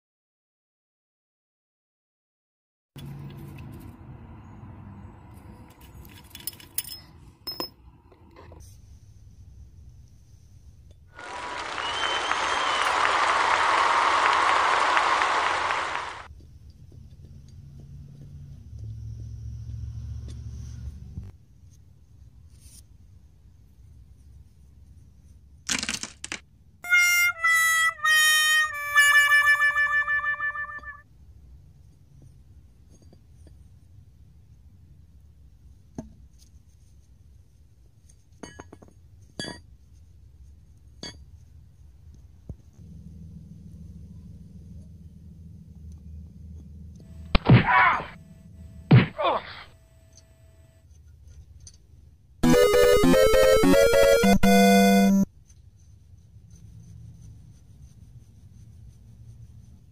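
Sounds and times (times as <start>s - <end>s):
metal clinking on asphalt: 5.7s - 7.8s
low mechanical rumble: 42.8s - 47.4s.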